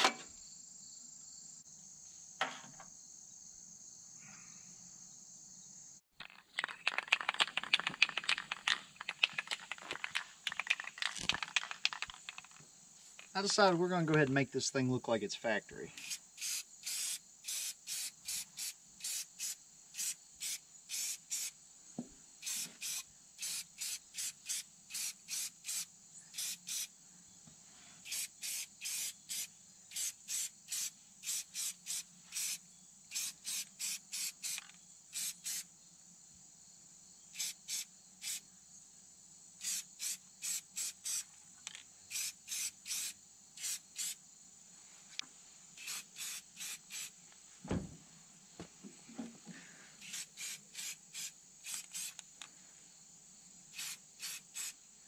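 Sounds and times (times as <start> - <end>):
spray paint can bursts: 6.2 - 12.6, 16.0 - 21.6, 22.4 - 26.9, 28.0 - 35.7, 37.3 - 38.4, 39.6 - 41.3, 42.1 - 44.2, 45.8 - 47.2, 50.0 - 52.3, 53.7 - 54.8.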